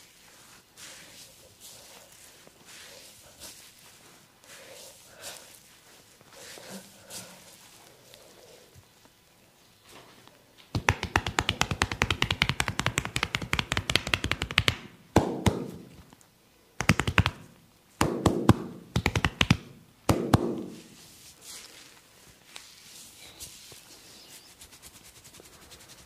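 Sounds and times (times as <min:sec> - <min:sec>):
rapid massage tapping: 0:10.7 - 0:15.9, 0:16.8 - 0:20.8.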